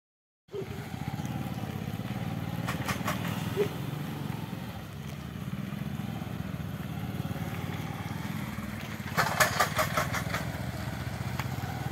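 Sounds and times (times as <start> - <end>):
motorcycle engine running: 0.5 - 11.9
sharp rattling knocks: 2.6 - 3.4, 9.1 - 10.6.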